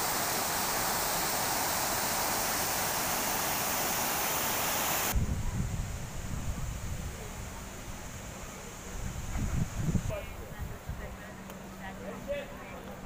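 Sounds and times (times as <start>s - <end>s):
fountain water splashing into basin: 0.0s - 5.2s.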